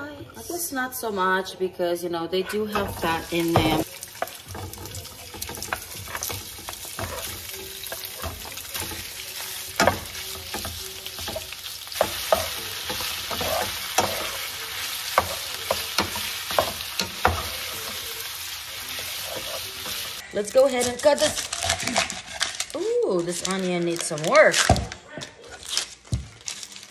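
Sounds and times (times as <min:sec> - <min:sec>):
sausage sizzling in a pan: 0:02.7 - 0:20.5.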